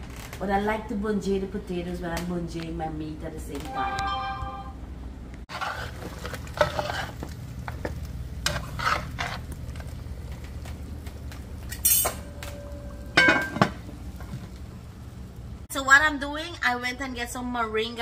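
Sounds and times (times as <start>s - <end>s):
ladle scraping metal pot: 5.5s - 7.3s, 8.4s - 9.4s.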